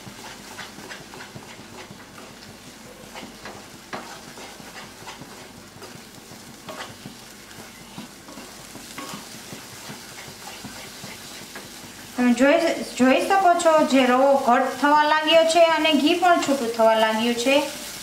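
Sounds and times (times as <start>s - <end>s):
wooden spatula scraping pan: 0.0s - 12.0s
hot ghee sizzling: 0.0s - 18.0s.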